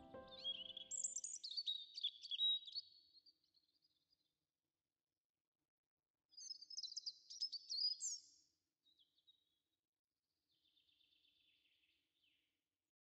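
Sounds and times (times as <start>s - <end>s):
bird call: 0.0s - 1.1s.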